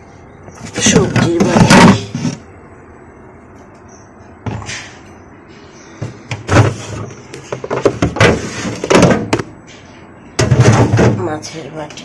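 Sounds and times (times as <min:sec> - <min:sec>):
plastic containers clattering: 0:00.5 - 0:02.5, 0:06.0 - 0:09.5, 0:10.3 - 0:11.5
plastic container scraping: 0:00.6 - 0:02.5, 0:06.4 - 0:09.4.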